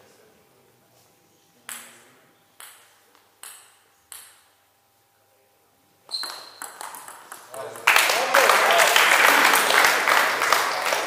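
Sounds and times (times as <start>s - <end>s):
table tennis ball bouncing: 1.7s - 2.0s, 2.6s - 4.6s, 6.1s - 7.9s.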